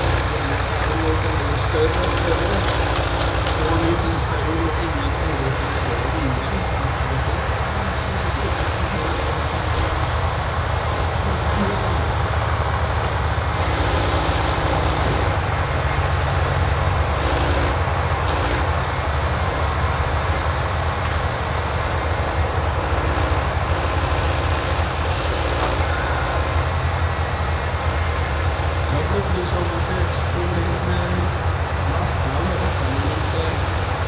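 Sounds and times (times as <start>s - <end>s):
diesel engine droning: 0.0s - 34.0s
higher hydraulic hum: 0.0s - 34.0s.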